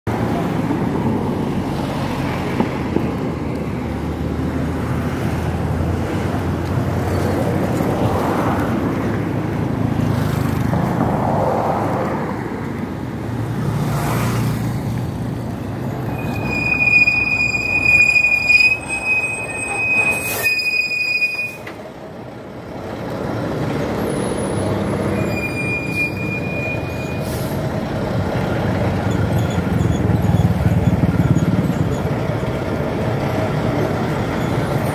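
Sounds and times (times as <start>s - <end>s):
road traffic rumble: 0.1s - 34.9s
high steady squeal: 15.8s - 21.8s, 24.0s - 27.6s.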